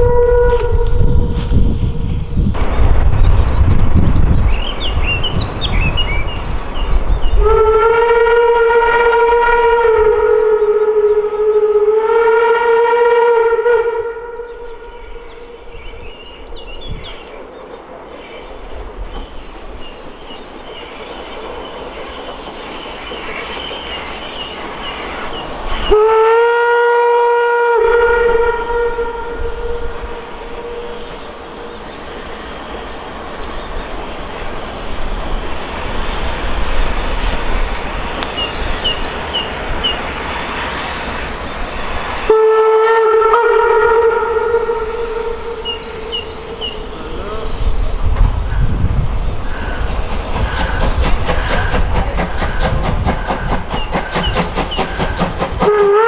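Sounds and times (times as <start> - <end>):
steam locomotive whistle: 0.0 - 1.4, 7.3 - 15.8, 25.8 - 31.3, 42.2 - 46.9, 52.5 - 56.0
steam train approaching: 0.0 - 56.0
small birds chirping: 14.3 - 26.0, 30.2 - 42.3, 45.4 - 55.7.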